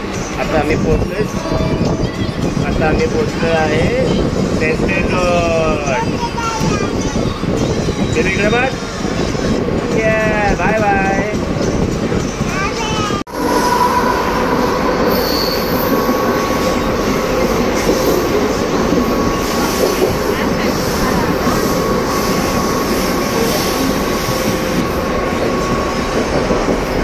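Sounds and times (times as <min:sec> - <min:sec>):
train wheels rumbling on rails: 0:00.0 - 0:27.0
wheel squeal: 0:13.4 - 0:17.4.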